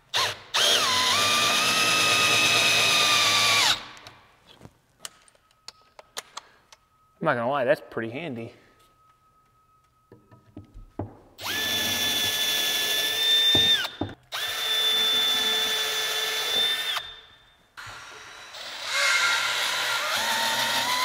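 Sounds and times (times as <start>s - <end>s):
drill driving screws: 0.1s - 4.0s, 11.4s - 17.2s, 17.8s - 21.0s.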